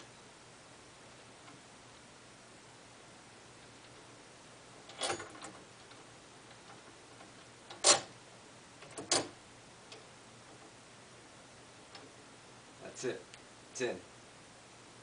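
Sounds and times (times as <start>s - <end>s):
sharp metal clicks: 7.7s - 8.1s.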